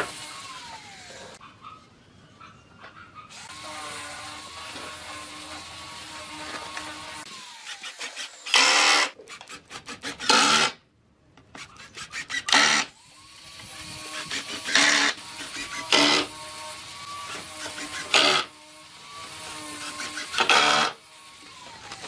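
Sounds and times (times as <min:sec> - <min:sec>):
power tool motor humming: 0:03.4 - 0:10.8, 0:11.6 - 0:22.0
rasping strokes on wood: 0:11.5 - 0:12.9, 0:13.6 - 0:18.5, 0:19.3 - 0:21.0.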